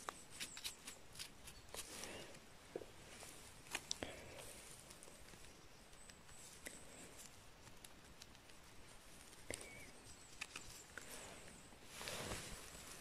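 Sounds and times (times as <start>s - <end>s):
knife scraping mushroom stem: 0.0s - 2.1s.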